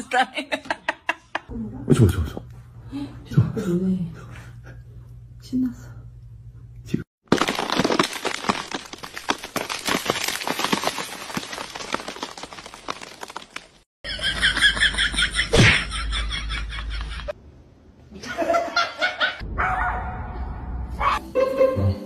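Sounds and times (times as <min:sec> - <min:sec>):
people laughing: 0:14.1 - 0:17.3.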